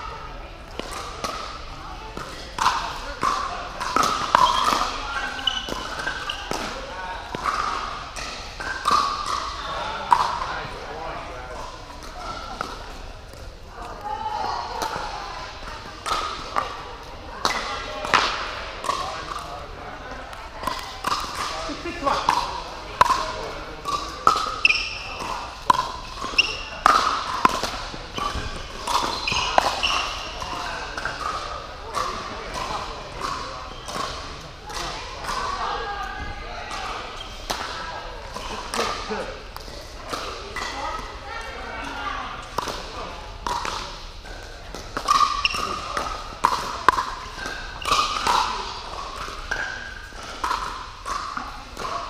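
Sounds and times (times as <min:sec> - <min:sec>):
ball bouncing on court: 0:00.7 - 0:10.6, 0:20.3 - 0:35.5, 0:42.4 - 0:52.0
sneakers squeaking on court: 0:04.0 - 0:09.7, 0:23.9 - 0:31.4.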